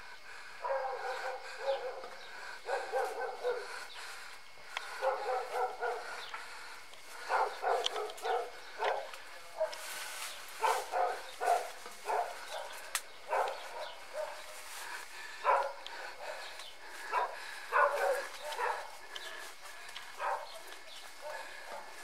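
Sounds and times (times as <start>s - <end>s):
dog barking and yelping: 0.6s - 3.8s, 5.0s - 6.2s, 7.2s - 9.8s, 10.6s - 14.4s, 15.4s - 16.5s, 17.1s - 19.0s, 20.2s - 20.6s.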